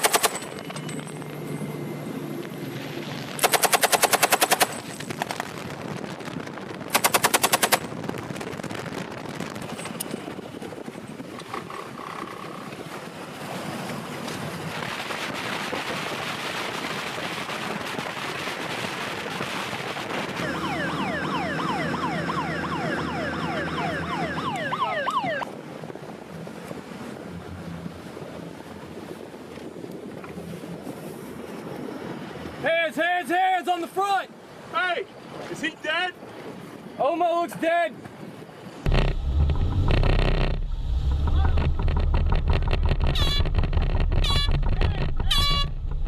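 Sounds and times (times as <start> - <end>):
machine gun bursts: 0.0 - 0.6, 3.4 - 5.0, 6.9 - 7.9
rushing wind and water: 0.0 - 46.0
wavering engine-like sound: 0.2 - 3.9, 20.3 - 25.4, 38.8 - 46.0.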